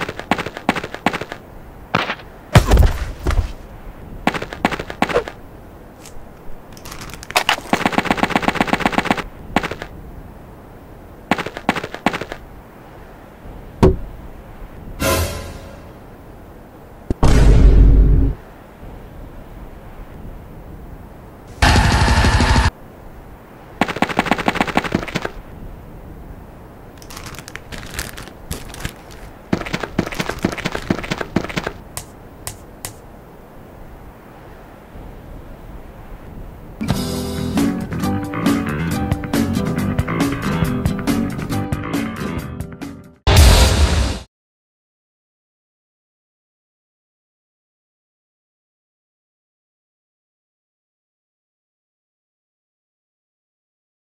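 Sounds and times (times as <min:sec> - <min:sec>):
heavy hit: 0:43.3 - 0:44.3.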